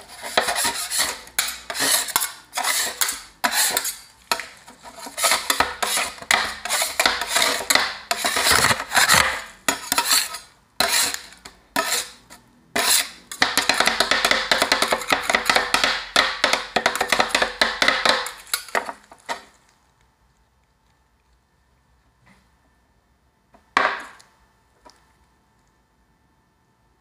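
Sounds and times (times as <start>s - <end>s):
metal spatulas chopping on steel pan: 0.0s - 12.2s, 12.8s - 19.0s.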